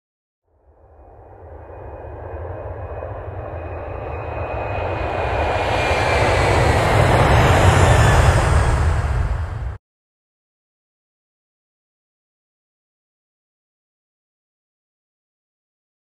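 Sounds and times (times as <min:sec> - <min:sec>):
high whine sliding down: 0:00.7 - 0:09.8
jet engine rumble: 0:00.8 - 0:09.8.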